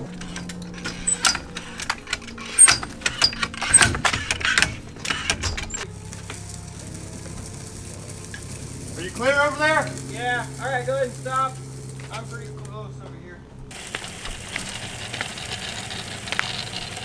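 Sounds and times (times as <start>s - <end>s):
sharp clicks and knocks: 0.0s - 6.4s
low steady hum: 0.0s - 17.0s.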